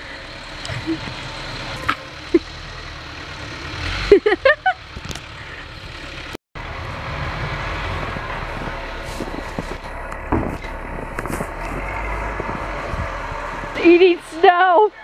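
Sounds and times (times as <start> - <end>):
wind rumble on microphone: 6.8 - 14.2.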